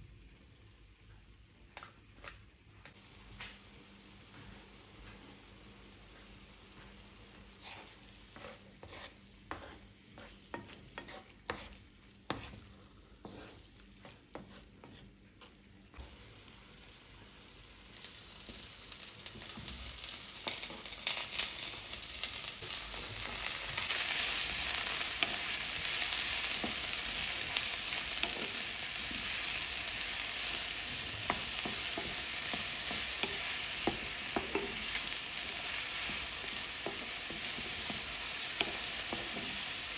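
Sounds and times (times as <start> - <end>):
vegetables sizzling in pan: 2.9 - 14.6, 16.0 - 39.9
wooden spatula scraping pan: 7.6 - 15.2, 31.2 - 39.8.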